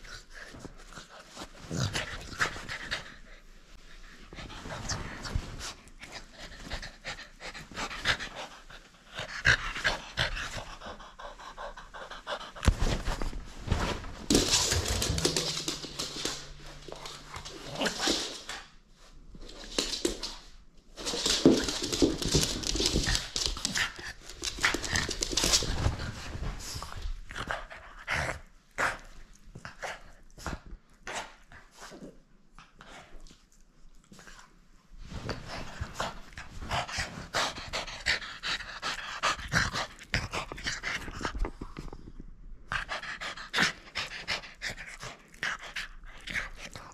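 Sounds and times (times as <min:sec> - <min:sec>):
dog panting: 0:06.3 - 0:12.7.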